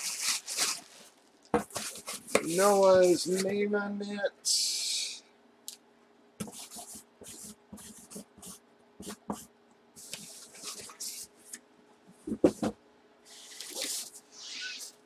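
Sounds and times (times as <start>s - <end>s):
low electrical hum: 0.0s - 15.0s
marker pen scratching: 6.4s - 11.3s
pen knocks: 12.3s - 12.8s.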